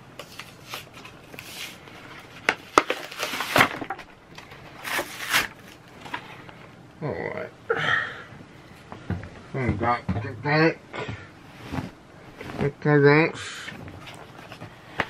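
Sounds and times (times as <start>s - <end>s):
rustling and scraping of handling: 0.1s - 6.8s, 11.0s - 13.0s, 13.6s - 15.0s.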